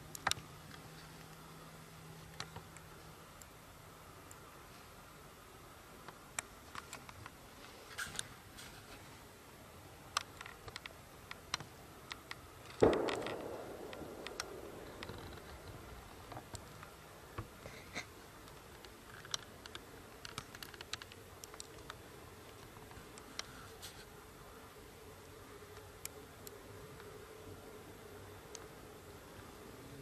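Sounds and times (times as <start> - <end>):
faint ticks and rustles: 0.0 - 30.0
distant rifle shot echoing: 12.8 - 16.5.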